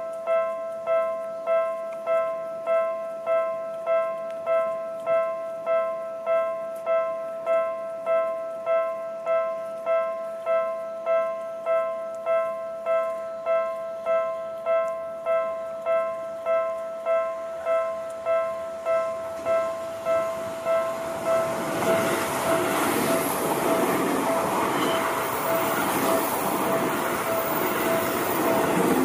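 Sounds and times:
level-crossing warning bell: 0:00.0 - 0:29.0.

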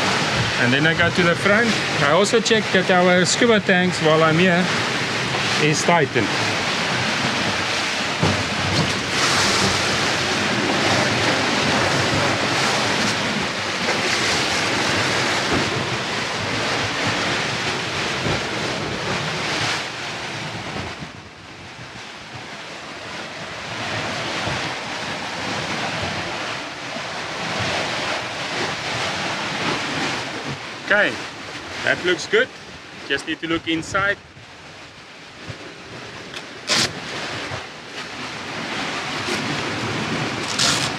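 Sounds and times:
wind buffeting microphone: 0:00.0 - 0:31.9
rush of open sea: 0:00.0 - 0:40.9.

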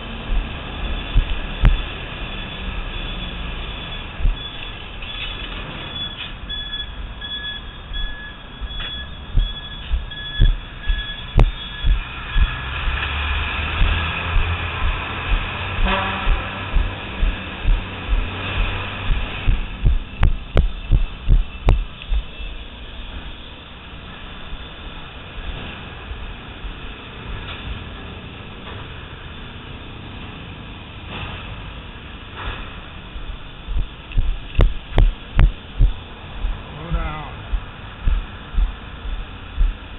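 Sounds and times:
truck rumbling through tunnel: 0:00.0 - 0:39.9
footsteps thumping: 0:08.8 - 0:13.1, 0:13.7 - 0:22.3, 0:33.7 - 0:39.9
steady background hum: 0:13.7 - 0:25.5, 0:32.3 - 0:39.9.

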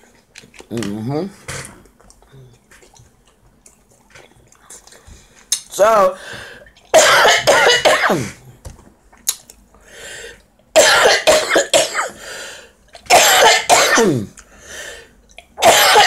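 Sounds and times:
woman coughing: 0:07.0 - 0:08.4, 0:10.8 - 0:12.2, 0:13.1 - 0:14.3, 0:15.6 - 0:16.0
woman clearing throat: 0:13.1 - 0:14.3.

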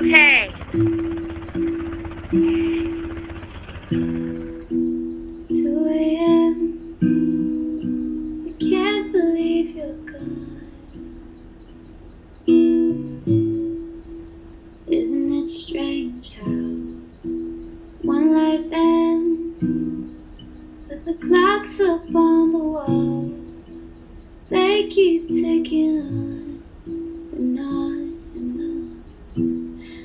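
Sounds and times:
plucked acoustic guitar: 0:00.0 - 0:30.0
person singing: 0:05.4 - 0:06.8, 0:08.5 - 0:11.0, 0:14.9 - 0:16.9, 0:20.9 - 0:23.4, 0:27.4 - 0:29.1.

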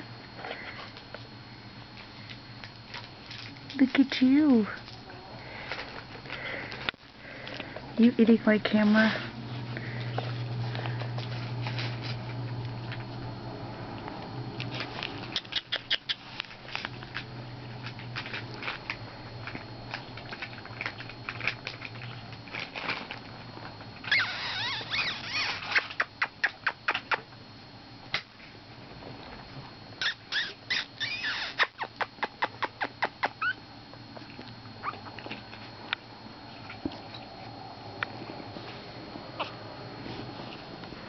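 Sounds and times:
puppies squeaking and whimpering: 0:24.0 - 0:26.0, 0:30.0 - 0:33.6, 0:34.8 - 0:35.1.

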